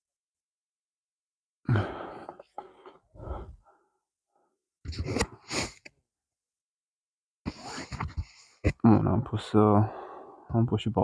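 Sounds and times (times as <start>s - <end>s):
man sighing and breathing heavily: 1.6s - 3.9s.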